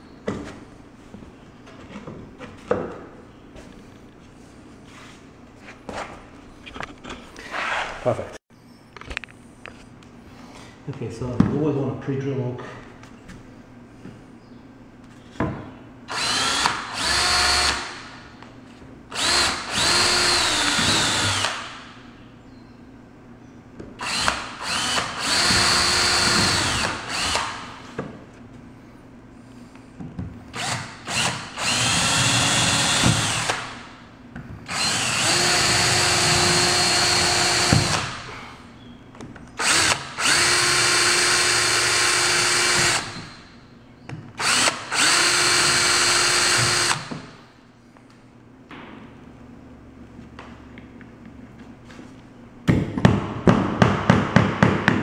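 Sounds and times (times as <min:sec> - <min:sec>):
cordless drill boring into wood: 0:16.1 - 0:18.1, 0:19.1 - 0:21.8, 0:24.0 - 0:27.7, 0:30.6 - 0:33.8, 0:34.7 - 0:38.2, 0:39.6 - 0:43.4, 0:44.4 - 0:47.2.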